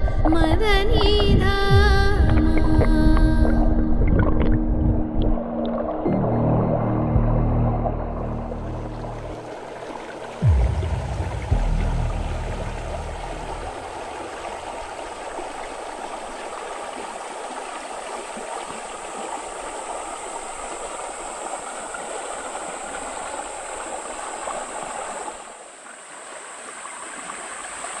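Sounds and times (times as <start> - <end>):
creek rushing over rocks: 9.1 - 28.0.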